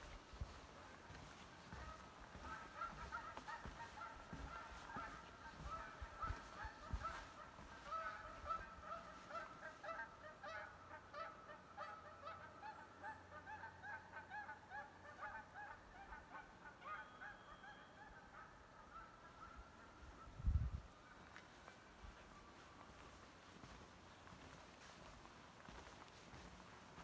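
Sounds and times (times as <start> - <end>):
footsteps on wooden boardwalk: 0.0 - 9.9, 21.2 - 27.0
geese honking: 1.0 - 20.4.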